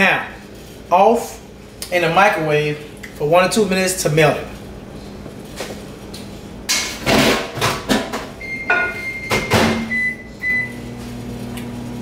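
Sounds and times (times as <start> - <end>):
microwave humming: 4.1 - 12.0.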